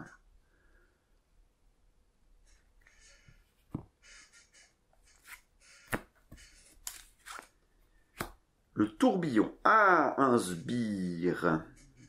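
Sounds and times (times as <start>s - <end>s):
cards sliding and rustling: 5.1s - 8.4s.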